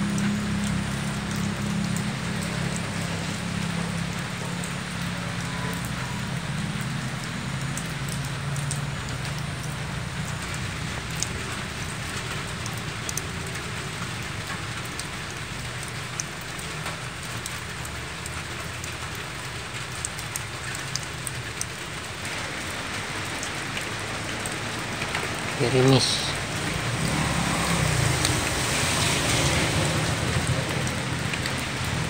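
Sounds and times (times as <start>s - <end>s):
light rain falling: 0.0s - 32.0s
drops ticking: 5.7s - 22.3s.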